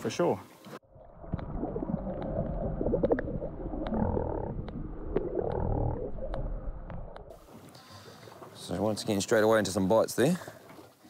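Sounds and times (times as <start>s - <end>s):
underwater rumble and gurgling: 0.8s - 8.4s
sharp underwater clicks: 1.3s - 7.4s.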